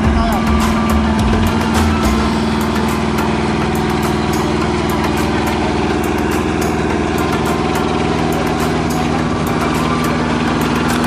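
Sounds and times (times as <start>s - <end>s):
diesel engine running: 0.0s - 11.0s
fast mechanical clatter: 0.8s - 11.0s.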